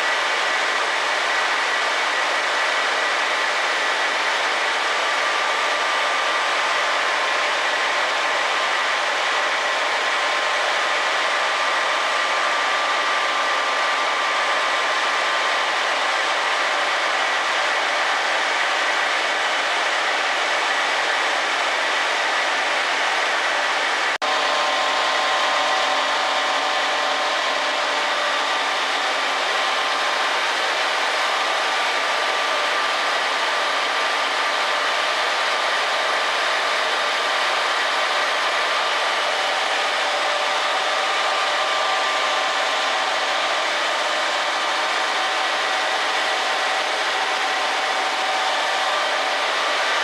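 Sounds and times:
printing press running: 0:24.2 - 0:36.4.

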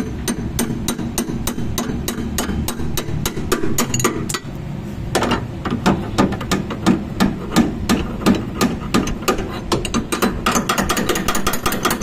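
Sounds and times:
hammer striking steel drift: 0:00.0 - 0:04.5.

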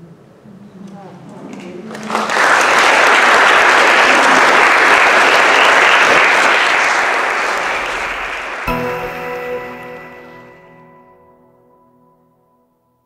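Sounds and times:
audience applauding: 0:01.9 - 0:10.7
music: 0:08.6 - 0:13.0.

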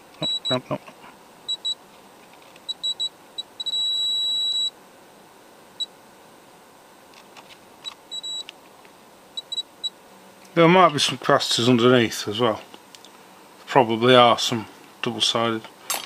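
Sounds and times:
multimeter beeping: 0:00.2 - 0:00.6, 0:01.5 - 0:01.8, 0:02.6 - 0:04.7, 0:07.8 - 0:08.5, 0:09.4 - 0:09.9.

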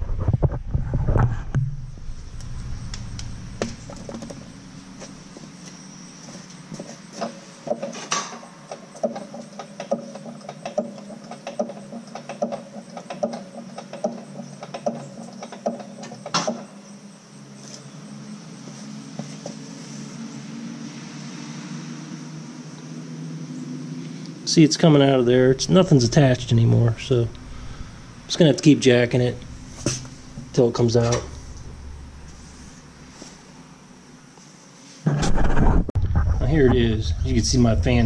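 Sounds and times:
steady low hum: 0:00.0 - 0:34.4, 0:35.1 - 0:38.0
floor jack clicking and knocking: 0:07.2 - 0:16.7.

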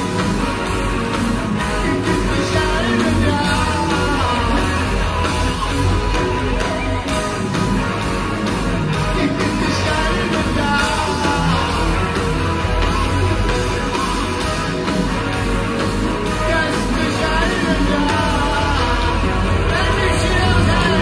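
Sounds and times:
heavy metal band playing: 0:00.0 - 0:21.0
man singing: 0:01.6 - 0:05.3, 0:09.0 - 0:12.4, 0:16.2 - 0:21.0.

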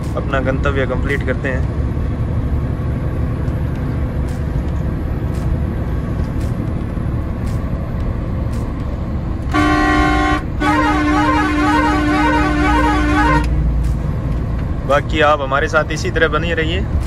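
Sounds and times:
truck engine and road drone: 0:00.0 - 0:17.0
truck horn warbling tune: 0:09.5 - 0:13.6.

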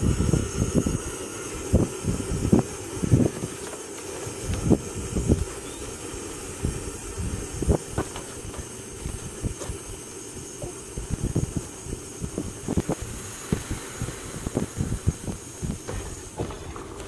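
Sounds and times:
gas burner running: 0:00.0 - 0:17.0
boiling water thumps and pops: 0:11.1 - 0:17.0.

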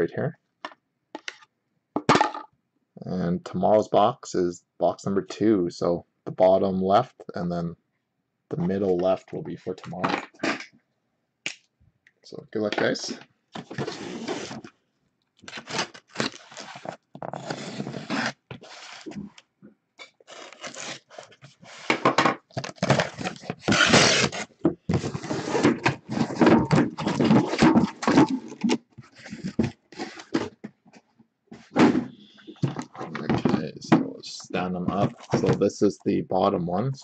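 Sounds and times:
cardboard scraping and rustling: 0:13.6 - 0:14.7, 0:15.4 - 0:19.3, 0:20.3 - 0:30.6
plastic wrap rustling: 0:15.4 - 0:19.2
boxes thunking: 0:21.9 - 0:30.6, 0:31.6 - 0:34.2, 0:34.8 - 0:35.6.

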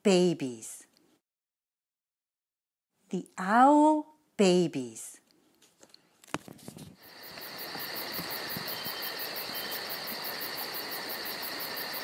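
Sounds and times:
fast repeating cricket chirp: 0:07.0 - 0:12.0
insects trilling: 0:07.0 - 0:12.0.

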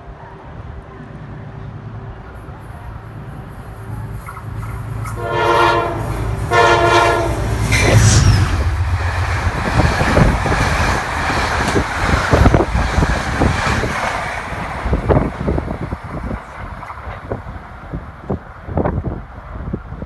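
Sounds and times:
train passing with loud rumble: 0:00.0 - 0:20.0
train horn blasts: 0:05.1 - 0:08.9
wheels clacking over rail joints: 0:08.8 - 0:17.6.

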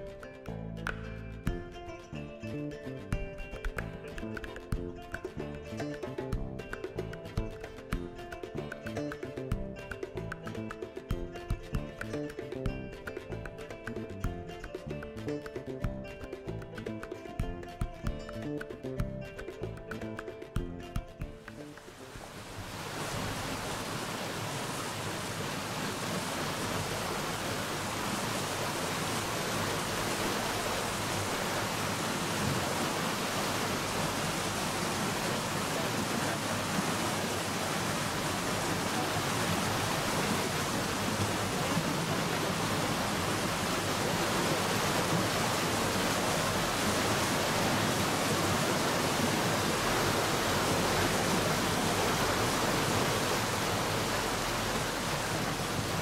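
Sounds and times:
white water rushing through rapids: 0:21.6 - 0:56.0.

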